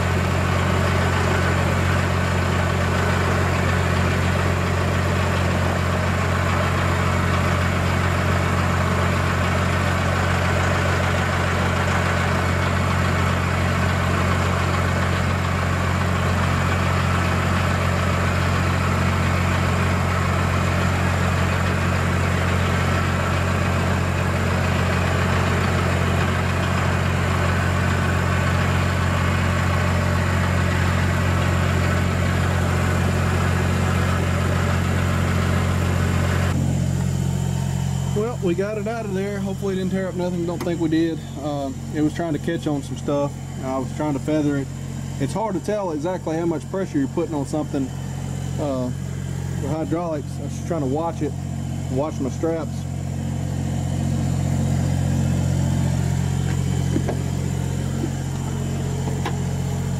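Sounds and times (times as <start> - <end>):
loader engine idling: 0.0 - 59.9
hydraulics lifting: 47.4 - 59.9.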